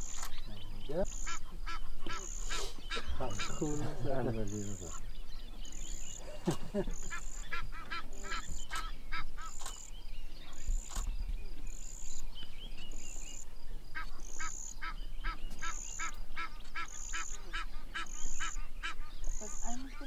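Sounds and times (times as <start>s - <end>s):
short honking animal calls: 1.1s - 5.0s, 7.0s - 9.6s.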